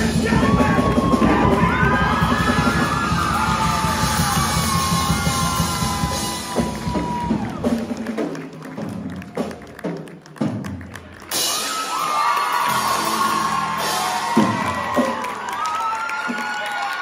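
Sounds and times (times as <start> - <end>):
shouted vocals: 0.0 - 7.6
rock band playing live: 0.0 - 16.6.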